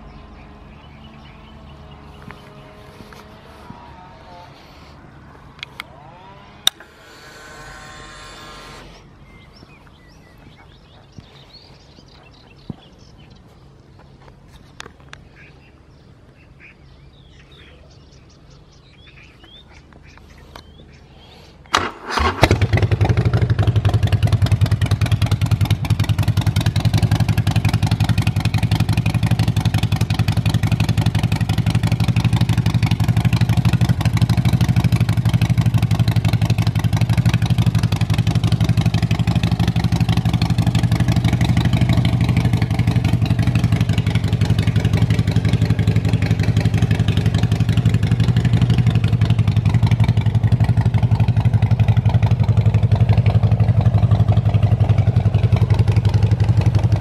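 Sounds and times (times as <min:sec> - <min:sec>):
electric starter cranking: 0:06.5 - 0:09.2, 0:21.7 - 0:23.1
motorcycle engine idling: 0:21.7 - 0:57.0.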